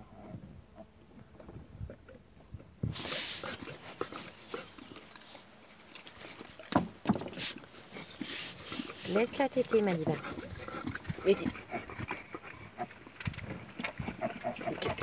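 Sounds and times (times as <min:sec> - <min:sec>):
dog sniffing: 0:02.9 - 0:06.6, 0:07.3 - 0:12.8
small knocks and rustles: 0:05.9 - 0:07.6.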